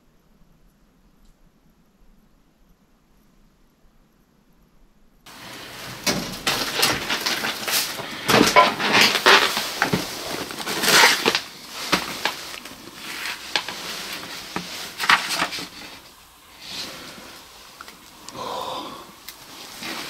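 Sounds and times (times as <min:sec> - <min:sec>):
crunching and crackling: 0:05.3 - 0:20.0.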